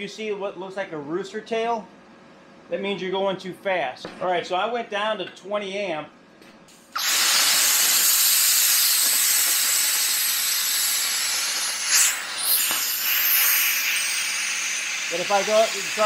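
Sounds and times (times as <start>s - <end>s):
plasma cutter torch hissing: 6.7s - 16.0s.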